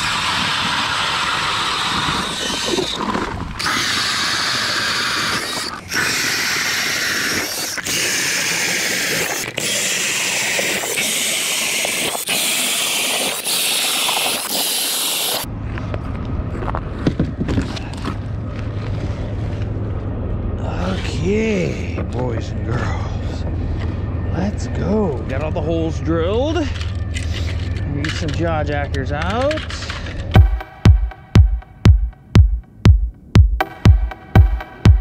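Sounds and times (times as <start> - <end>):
ice auger drilling through ice: 0.0 - 15.5
rumbling and knocking handling noise: 15.5 - 20.2.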